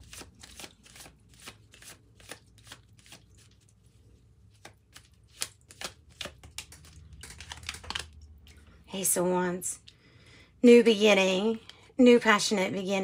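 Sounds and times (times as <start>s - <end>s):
cards being shuffled: 0.0s - 3.8s, 4.4s - 8.6s.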